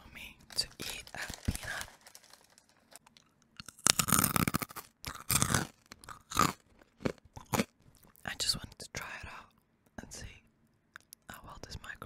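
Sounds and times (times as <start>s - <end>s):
peanut crunching close to microphone: 0.8s - 8.2s.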